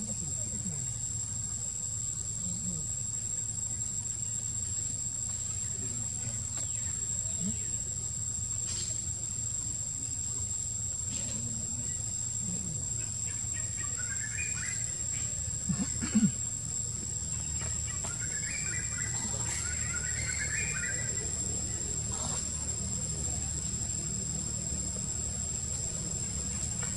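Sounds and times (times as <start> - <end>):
high-pitched insect drone: 0.0 - 26.9
birds twittering: 13.0 - 26.9.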